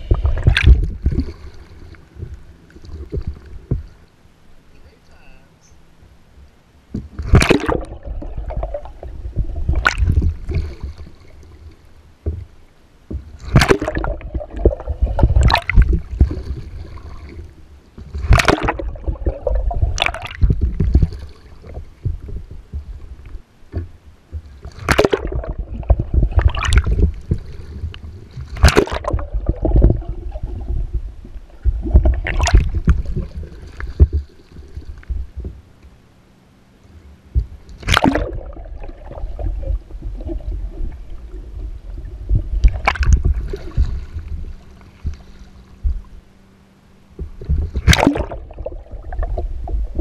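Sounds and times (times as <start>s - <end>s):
water splashing: 0.0s - 4.1s, 6.9s - 35.9s, 37.3s - 46.3s, 47.1s - 50.0s
water washing over camera: 7.1s - 11.2s, 13.3s - 23.2s, 24.3s - 35.6s, 37.8s - 46.0s, 47.3s - 50.0s
paddle sweeping through water: 13.2s - 23.2s, 24.4s - 35.6s, 37.7s - 46.2s, 47.3s - 50.0s.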